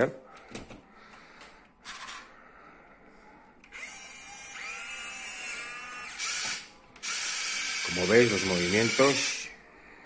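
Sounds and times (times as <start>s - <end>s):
small electric motor whine: 3.7s - 9.4s.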